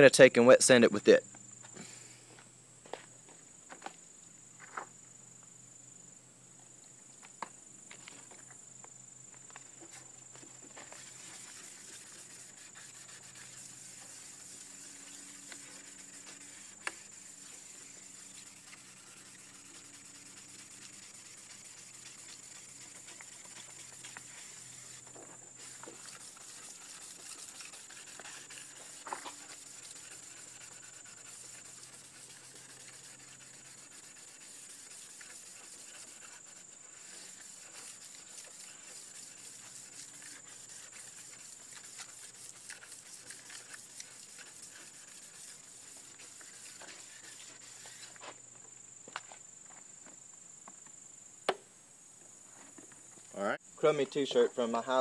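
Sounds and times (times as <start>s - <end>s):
high-pitched insect buzz: 9.9s - 48.4s
sandpaper rubbing on plastic: 10.8s - 48.3s.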